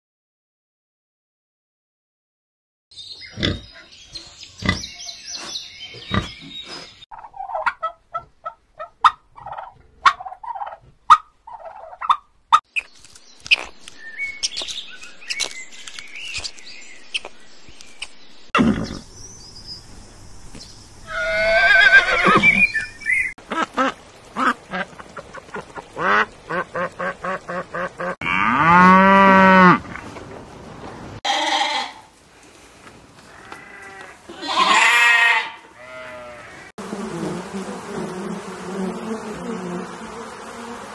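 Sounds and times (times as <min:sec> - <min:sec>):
horse whinny: 0:21.1 - 0:22.6
cow mooing: 0:28.2 - 0:29.8
sheep bleating: 0:31.2 - 0:32.1, 0:33.3 - 0:36.7.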